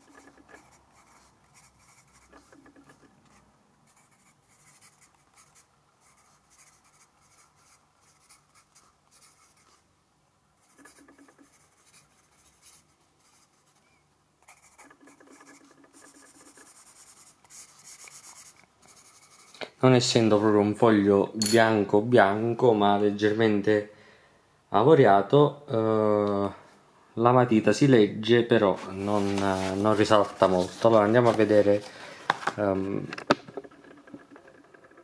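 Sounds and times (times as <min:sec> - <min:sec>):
pencil scratching on paper: 0:00.0 - 0:09.8, 0:10.6 - 0:19.6.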